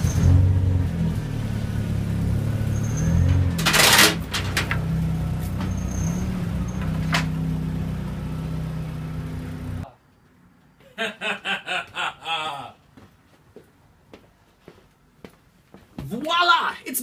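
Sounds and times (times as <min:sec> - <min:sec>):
truck engine running: 0:00.0 - 0:09.8.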